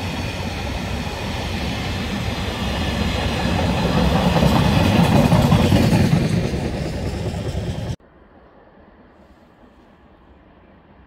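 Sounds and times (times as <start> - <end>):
train wheels rumbling on rails: 0.0 - 8.0.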